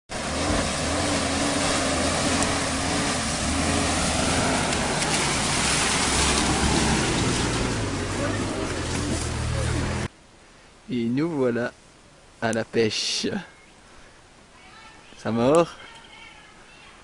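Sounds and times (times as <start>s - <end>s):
vehicle engine running: 0.1s - 10.1s
water splashing around wheels: 0.1s - 10.1s.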